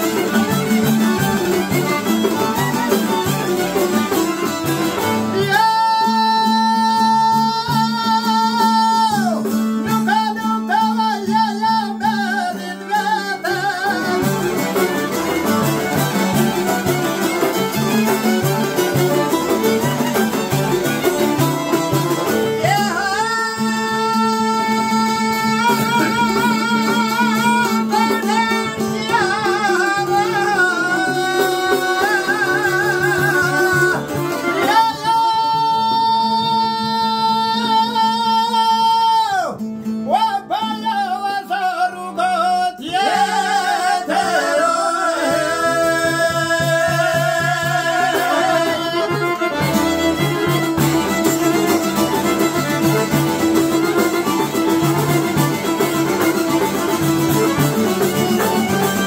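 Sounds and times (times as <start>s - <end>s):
plucked lutes strumming: 0.0s - 59.0s
man singing high held notes: 22.6s - 49.6s.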